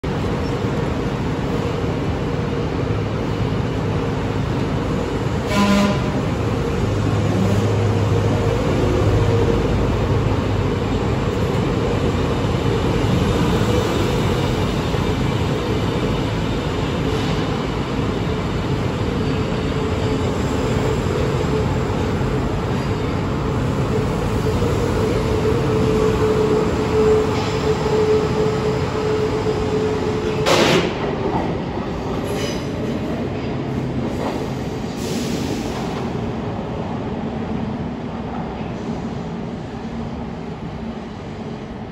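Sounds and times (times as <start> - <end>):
subway train rail running noise: 0.0 - 41.9
train whine: 0.0 - 41.9.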